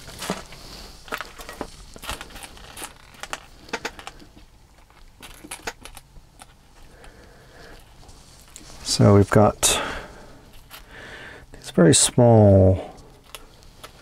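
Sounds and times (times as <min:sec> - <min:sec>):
small parts clicking and tapping: 0:01.1 - 0:08.6, 0:13.1 - 0:14.0.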